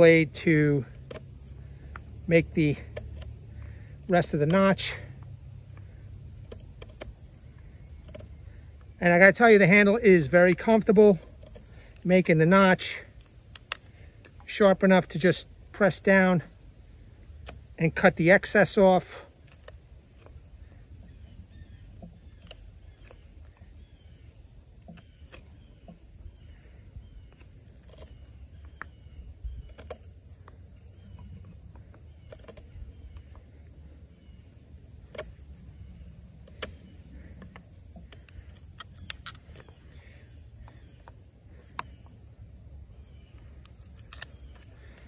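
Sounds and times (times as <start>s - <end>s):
high insect drone: 0.0s - 45.0s
knife cutting wood clicks: 0.9s - 9.0s, 10.6s - 12.5s, 13.1s - 14.5s, 17.2s - 18.0s, 19.4s - 20.4s, 21.0s - 23.9s, 29.6s - 33.4s, 35.0s - 35.5s, 36.3s - 42.2s, 43.0s - 45.0s.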